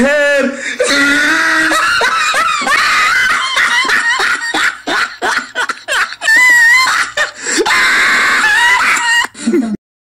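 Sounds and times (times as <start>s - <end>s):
boy laughing: 0.8s - 9.8s.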